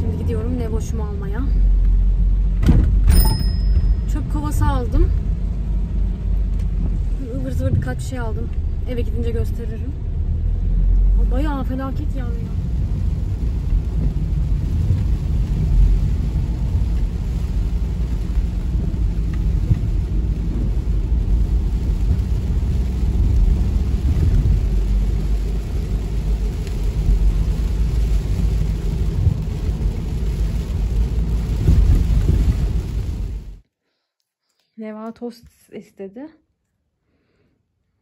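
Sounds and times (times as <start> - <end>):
car road and engine rumble: 0.0 - 33.7
rain hissing: 10.6 - 33.6.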